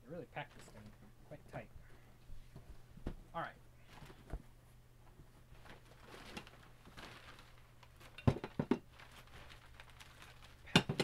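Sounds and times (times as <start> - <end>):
paper packing rustling: 5.4 - 8.2, 8.8 - 11.0.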